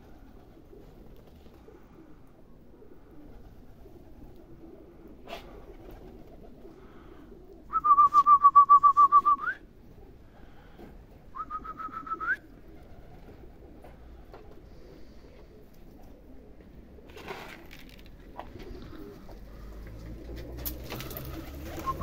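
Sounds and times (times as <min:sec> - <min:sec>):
loud trilled whistle: 0:07.7 - 0:09.6, 0:11.4 - 0:12.4.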